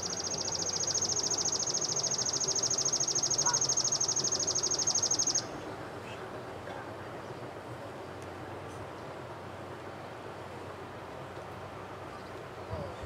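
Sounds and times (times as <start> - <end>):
insect trilling: 0.0 - 5.4.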